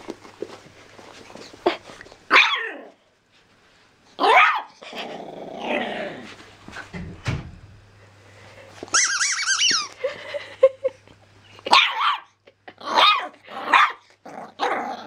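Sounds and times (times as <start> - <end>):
puppy growling: 1.4 - 3.0, 4.2 - 6.4, 12.7 - 15.0
puppy barking: 2.3 - 2.7, 4.2 - 4.8, 11.7 - 12.4, 13.0 - 14.8
squeaky toy squeak: 8.9 - 10.0.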